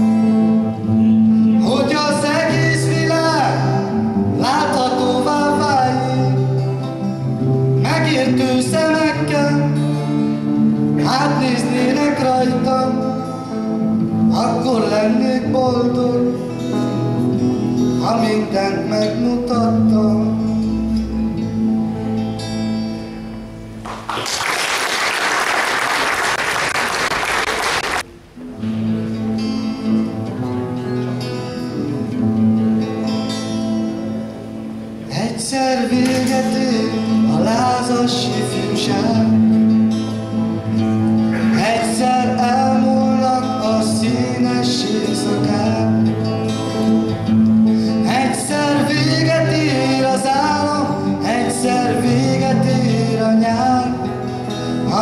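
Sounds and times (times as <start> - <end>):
young man singing: 0.0 - 21.3, 35.0 - 40.4, 41.2 - 55.0
acoustic guitars playing: 0.0 - 55.0
applause: 23.8 - 28.0.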